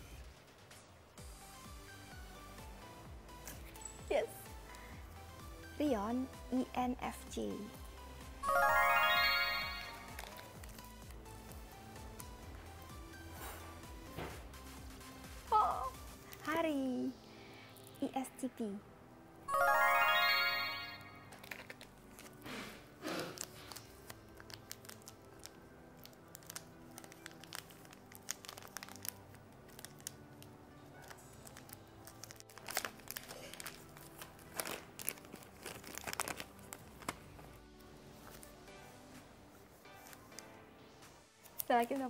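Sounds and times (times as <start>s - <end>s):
quiet background music: 0.0s - 42.0s
plastic wrapper crinkling and tearing: 9.8s - 11.2s, 21.3s - 22.4s, 23.1s - 37.3s.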